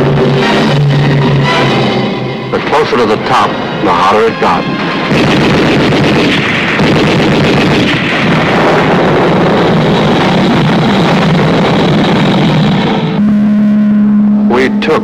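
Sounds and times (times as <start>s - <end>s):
explosions: 4.8s - 13.2s
dense gunfire: 5.0s - 12.6s.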